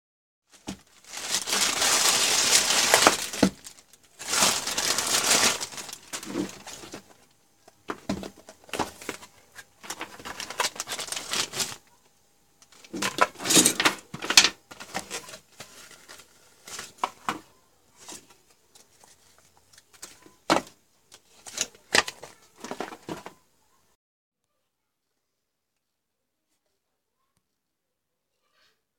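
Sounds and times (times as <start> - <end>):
plastic bag crinkling and tearing: 0.5 - 7.2, 9.8 - 11.8, 12.7 - 17.2
packaging rustling and clicks: 0.5 - 11.8, 12.6 - 17.4, 18.0 - 23.4.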